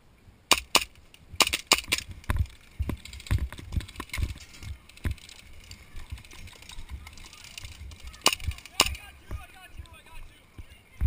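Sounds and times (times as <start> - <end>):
airsoft gunfire cracks: 0.5 - 2.0
running footsteps on concrete: 5.9 - 11.0.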